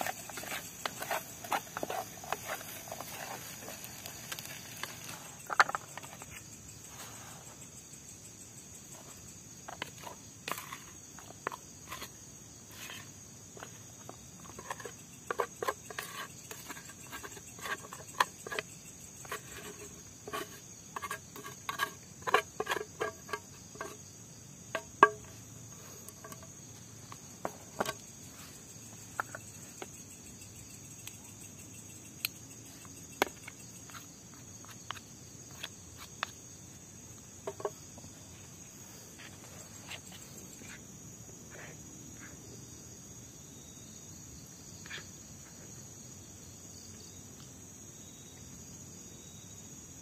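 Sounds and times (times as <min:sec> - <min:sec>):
crickets chirping: 0:00.0 - 0:50.0
spoon scraping metal pot: 0:14.4 - 0:24.0.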